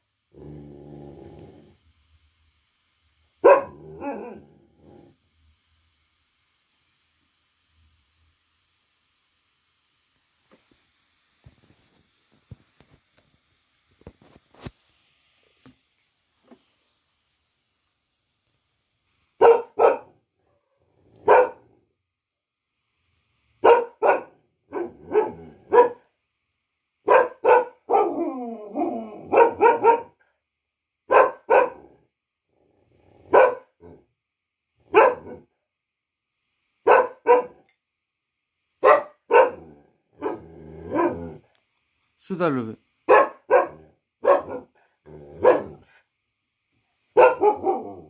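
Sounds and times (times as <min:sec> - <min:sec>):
dog barking: 0:03.4 - 0:04.4, 0:19.4 - 0:21.7, 0:23.6 - 0:26.1, 0:27.0 - 0:28.3, 0:29.2 - 0:30.2, 0:31.1 - 0:32.0, 0:33.3 - 0:33.8, 0:34.9 - 0:35.5, 0:36.8 - 0:37.6, 0:38.8 - 0:41.3, 0:43.1 - 0:44.8, 0:45.4 - 0:45.8, 0:47.2 - 0:48.0.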